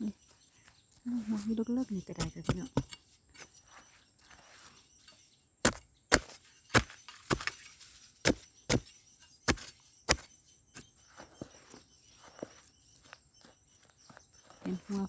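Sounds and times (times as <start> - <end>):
digging blade chopping into soil: 1.4 - 3.6, 5.6 - 10.9.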